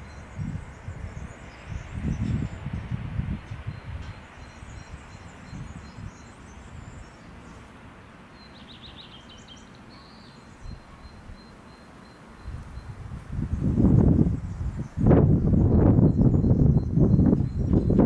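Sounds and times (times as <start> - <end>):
wind gusting over microphone: 0.0 - 8.1, 12.4 - 18.0
small birds chirping: 0.0 - 18.0.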